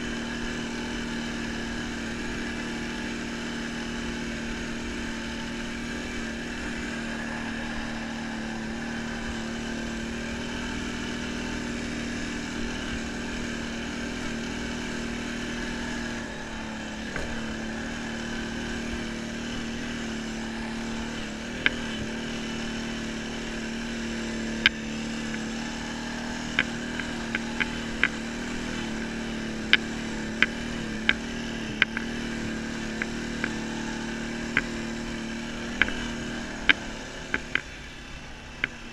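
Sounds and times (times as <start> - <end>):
atv engine droning: 0.0 - 38.9
sharp clicks and knocks: 26.4 - 33.6, 35.7 - 37.8.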